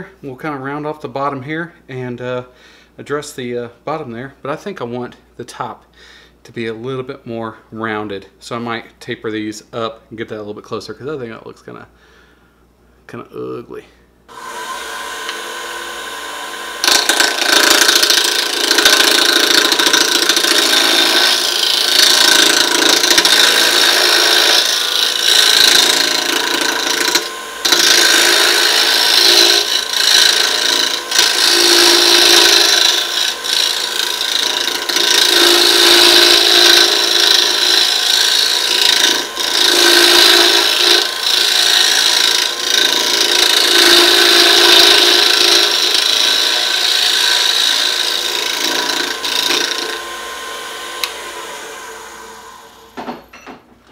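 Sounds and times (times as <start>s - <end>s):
lathe humming: 14.3s - 53.0s
chisel rasping on spinning wood: 16.8s - 50.0s.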